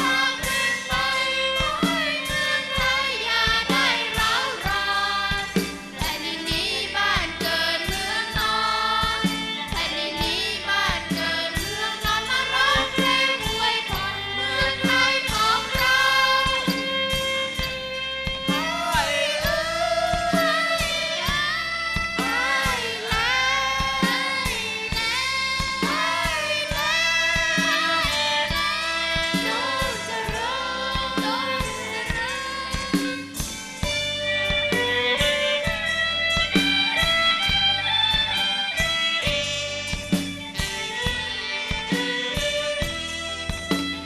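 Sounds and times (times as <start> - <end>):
woman singing: 0.0 - 17.6, 18.4 - 34.0
band with violins: 0.0 - 44.0
woodwind: 9.7 - 44.0.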